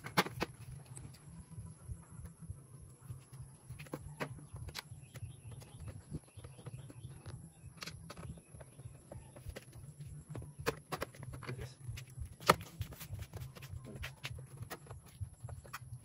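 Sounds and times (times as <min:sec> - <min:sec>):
low steady rumble: 0:00.5 - 0:03.8.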